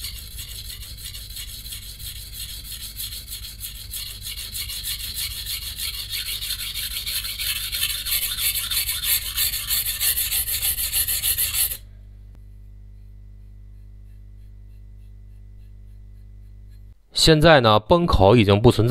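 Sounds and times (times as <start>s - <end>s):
knife grinding on whetstone: 0.0s - 11.8s
low steady hum: 0.0s - 18.9s.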